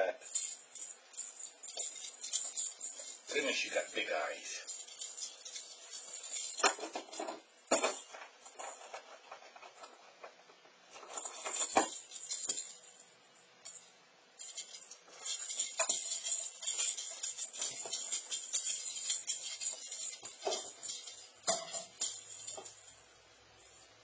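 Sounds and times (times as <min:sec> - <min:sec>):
jingle bell toy jingling: 0:00.0 - 0:09.1, 0:11.0 - 0:24.0
toy and paws knocking on floor: 0:04.8 - 0:12.8, 0:14.5 - 0:22.9.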